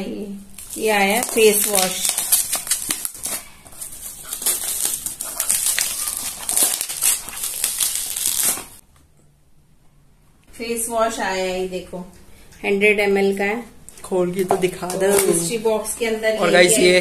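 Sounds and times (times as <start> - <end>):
packaging crinkling: 0.5 - 8.8.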